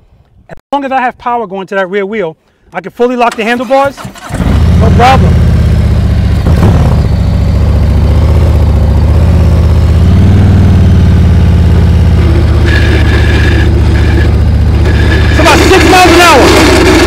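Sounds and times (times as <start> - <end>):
motorcycle engine running low revs: 4.1 - 17.0.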